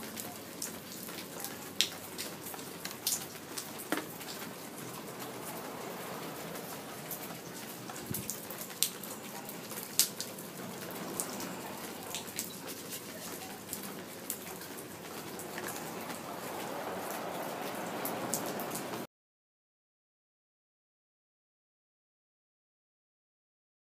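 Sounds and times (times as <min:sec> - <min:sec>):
raindrops ticking on surfaces: 0:00.0 - 0:19.1
steady rain falling: 0:00.0 - 0:19.1.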